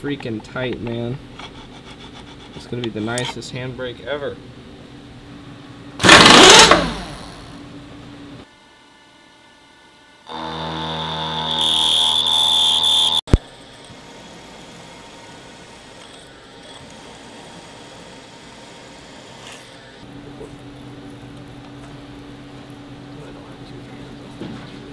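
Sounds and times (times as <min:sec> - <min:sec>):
faint machine hum: 0:00.0 - 0:24.9
loud burst of noise: 0:06.0 - 0:07.5
end mill cutting metal squealing: 0:11.2 - 0:13.2.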